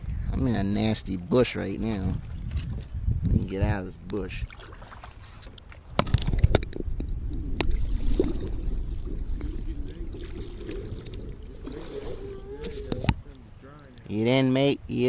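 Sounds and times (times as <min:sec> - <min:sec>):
water splashing: 0:04.3 - 0:14.2
steady low rumble: 0:06.0 - 0:13.9.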